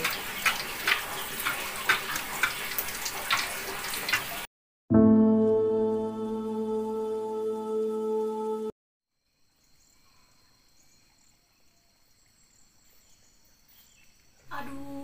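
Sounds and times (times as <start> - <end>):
guitar music: 4.9 - 8.7
soft ambient music: 4.9 - 8.7.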